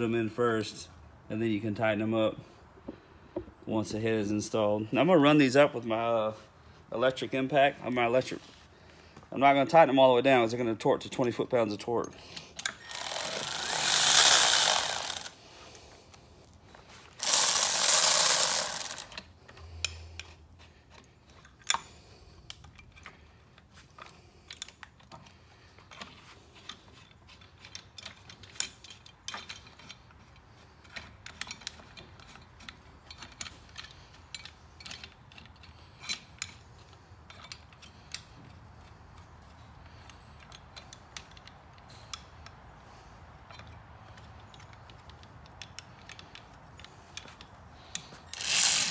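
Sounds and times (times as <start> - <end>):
tools clicking and clinking: 12.0 - 15.8, 17.2 - 21.9, 25.9 - 42.6, 43.4 - 48.9
impact wrench bursts: 12.6 - 15.8, 17.2 - 19.3, 48.0 - 48.9.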